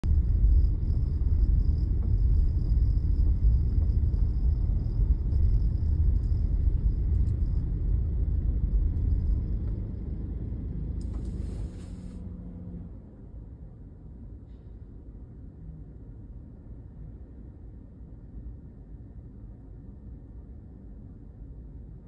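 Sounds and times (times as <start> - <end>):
car engine and road noise: 0.0 - 17.6.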